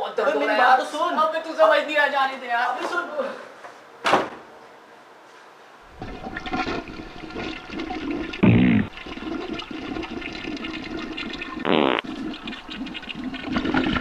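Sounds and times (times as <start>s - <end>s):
toilet flushing: 5.8s - 14.0s.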